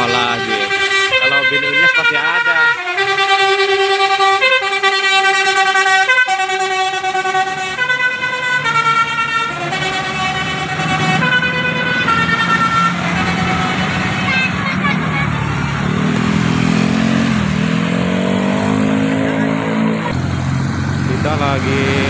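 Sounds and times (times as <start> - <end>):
bus musical horn playing: 0.0 - 17.2
low traffic noise: 0.0 - 22.0.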